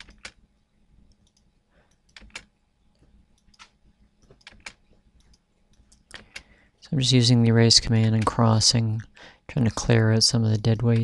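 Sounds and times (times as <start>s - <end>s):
computer mouse and keyboard clicks: 0.0s - 0.4s, 1.1s - 6.5s, 10.7s - 11.0s.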